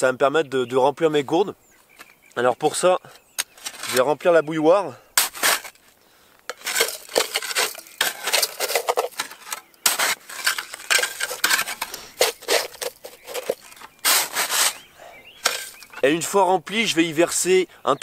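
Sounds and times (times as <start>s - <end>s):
shovel scooping snow: 3.6s - 4.1s, 5.2s - 5.8s, 6.5s - 16.0s.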